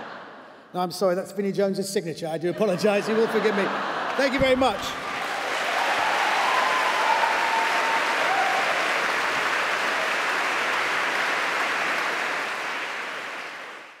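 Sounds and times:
audience applauding: 3.1s - 14.0s.

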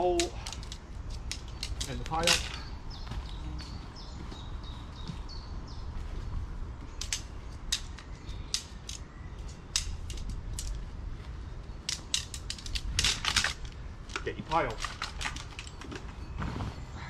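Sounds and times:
tent poles clicking and clacking: 0.0s - 3.8s, 6.8s - 16.4s.

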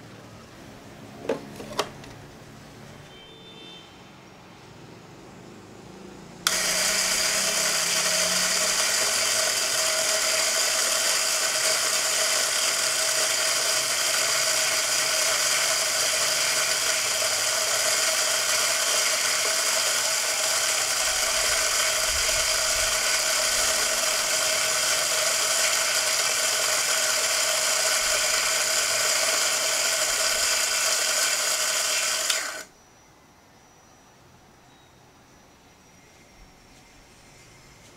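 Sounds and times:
coffee beans being ground: 6.5s - 32.7s
coffee grinder motor whine: 6.5s - 32.7s.

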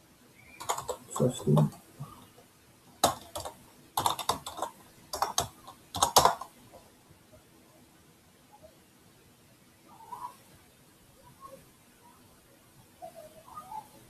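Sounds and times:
computer keyboard typing: 0.6s - 1.9s, 3.0s - 6.6s.

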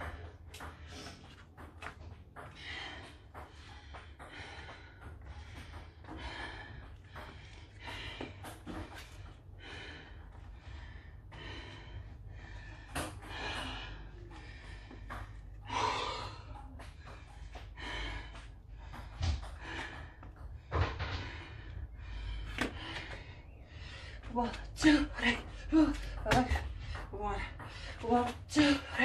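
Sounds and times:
woman breathing hard: 0.0s - 29.0s.

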